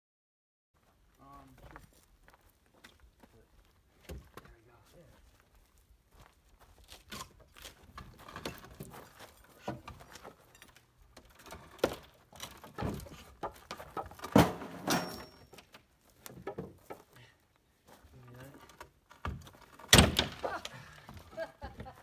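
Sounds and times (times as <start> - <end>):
wood and metal knocks and clatters: 7.1 - 17.2, 18.3 - 22.0.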